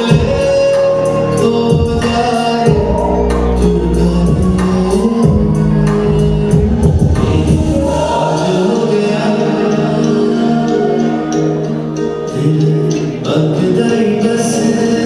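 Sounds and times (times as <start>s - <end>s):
backing music: 0.0s - 15.0s
man singing into microphone: 0.0s - 15.0s.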